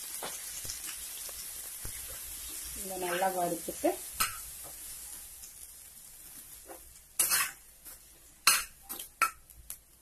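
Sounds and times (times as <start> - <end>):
food sizzling in a frying pan: 0.0 - 10.0
spoon scraping a pan: 1.8 - 5.0, 6.4 - 9.4
spoon clacking on pan: 4.1 - 4.9, 6.7 - 9.8.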